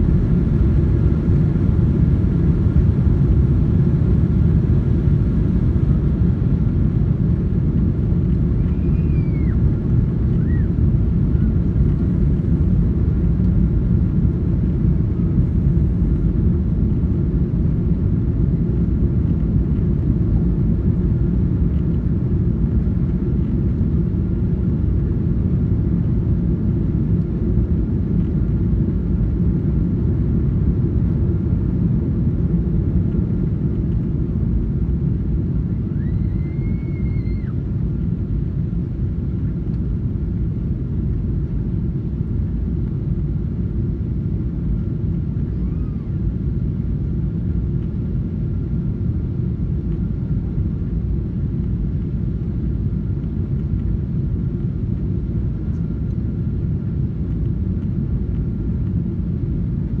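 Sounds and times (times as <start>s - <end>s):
air rushing past fuselage: 0.0s - 4.6s
airplane cabin engine rumble: 0.0s - 60.0s.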